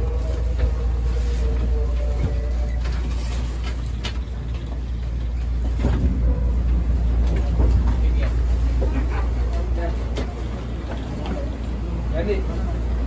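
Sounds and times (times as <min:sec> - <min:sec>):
humming tone: 0:00.0 - 0:07.6
train running rumble: 0:00.0 - 0:13.0.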